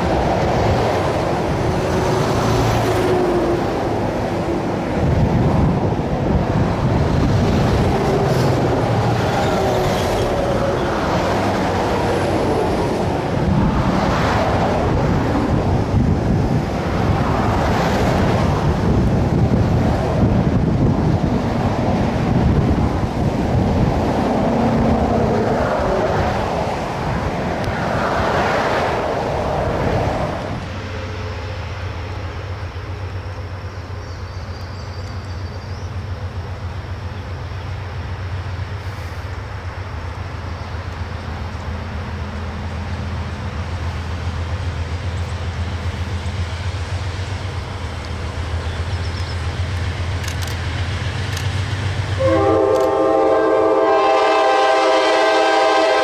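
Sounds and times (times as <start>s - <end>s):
diesel locomotive drone: 0.0s - 56.0s
wind buffeting microphone: 3.6s - 30.8s.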